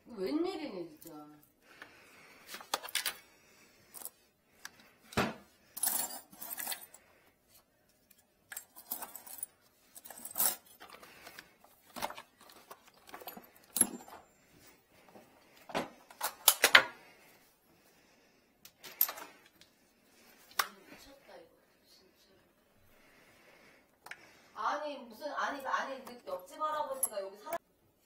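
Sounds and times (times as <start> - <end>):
metal tools and chains rattling: 5.7 - 7.1, 8.1 - 11.1, 12.0 - 14.4, 18.8 - 19.5, 26.4 - 27.6.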